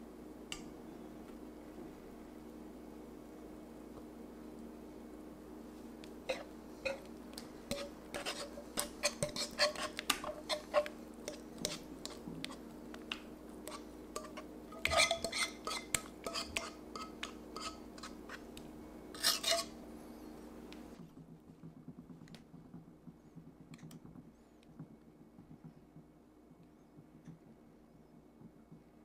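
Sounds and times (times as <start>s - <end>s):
utensil scraping metal pot: 6.2s - 18.5s, 19.1s - 19.8s
whisk tapping glass container: 13.7s - 17.8s.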